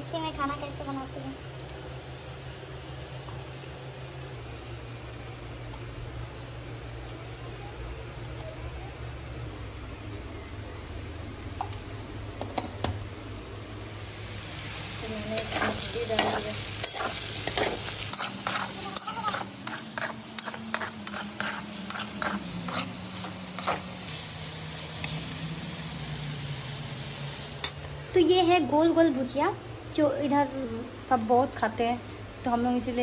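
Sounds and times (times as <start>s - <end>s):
potatoes sizzling in wok: 0.0s - 33.0s
metal spatula scraping pan: 15.3s - 23.9s.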